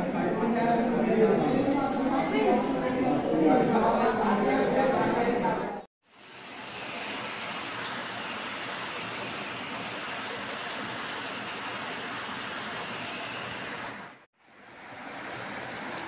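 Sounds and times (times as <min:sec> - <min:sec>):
heavy rain pouring: 0:06.1 - 0:16.0.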